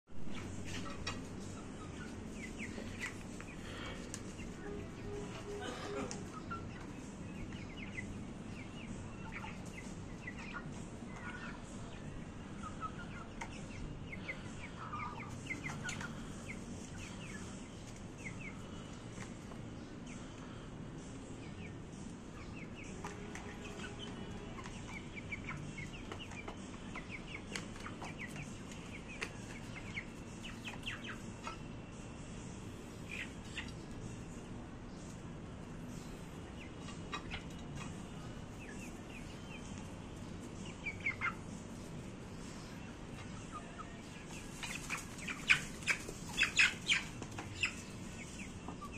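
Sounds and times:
chicks clucking and chirping: 0.2 - 48.9.

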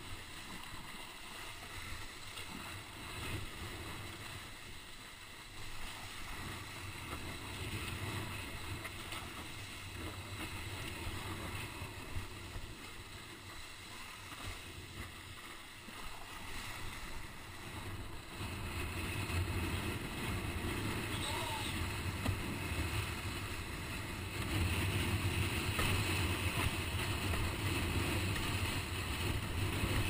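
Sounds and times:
water rushing under board: 0.0 - 30.0
wind on microphone: 16.2 - 30.0.

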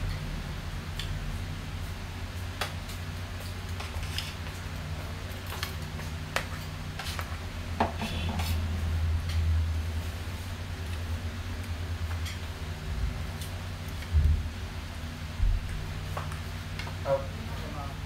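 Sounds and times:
low hum: 4.6 - 18.0.

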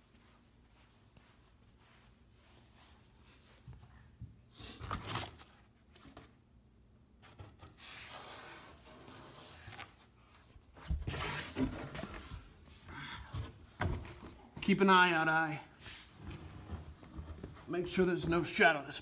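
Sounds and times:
cardboard scraping and rustling: 10.8 - 12.5.

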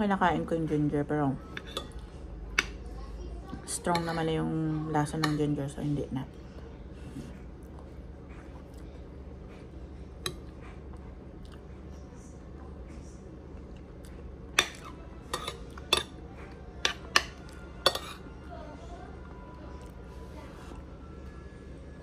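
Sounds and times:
steady low hum: 0.0 - 22.0
utensils clinking on plate: 1.5 - 2.8, 14.6 - 18.3.

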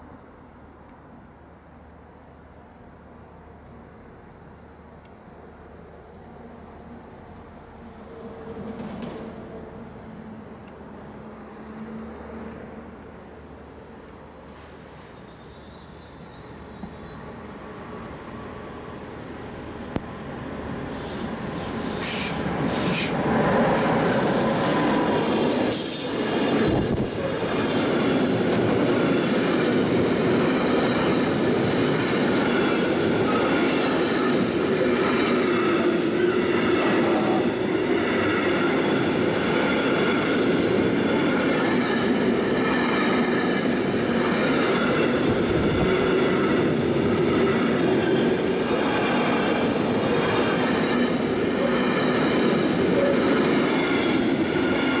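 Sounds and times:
electric locomotive passing: 3.8 - 55.0
wheels rumbling on rails: 26.3 - 55.0.

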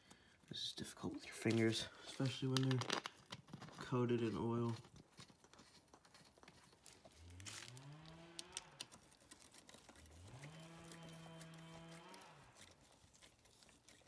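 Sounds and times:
cow mooing: 10.2 - 12.6.

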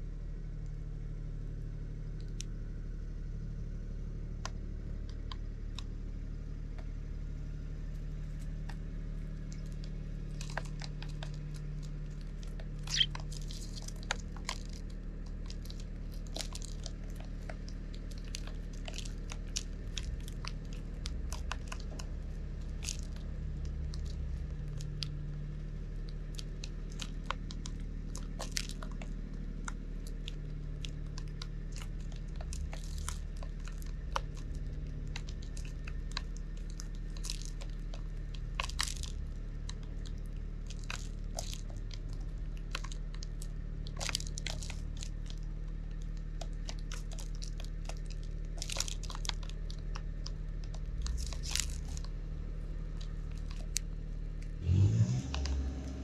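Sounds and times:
low steady hum: 0.0 - 56.0
beaks clicking on plastic trays: 9.5 - 25.2, 26.0 - 52.2
seeds being cracked: 12.4 - 25.2, 26.1 - 52.2.

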